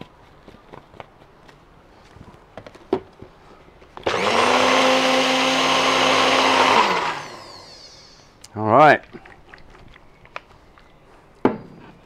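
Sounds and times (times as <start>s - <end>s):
electric blender running: 4.0s - 8.3s.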